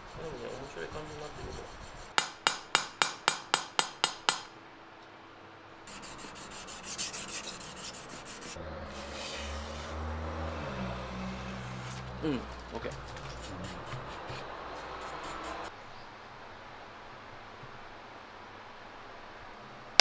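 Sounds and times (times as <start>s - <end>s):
high-pitched scratching on steel: 0.0s - 2.2s, 5.9s - 10.0s.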